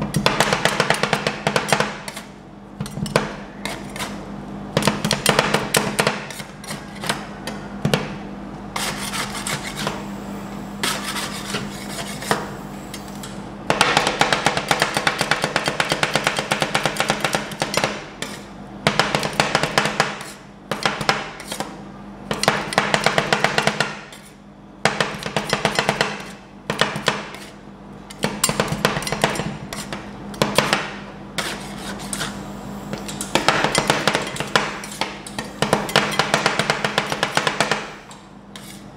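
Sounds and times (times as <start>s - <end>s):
steady low hum: 0.0s - 38.9s
metal spatulas chopping on steel: 0.1s - 4.1s, 13.7s - 21.7s, 24.9s - 27.5s, 28.1s - 32.3s, 33.0s - 38.8s.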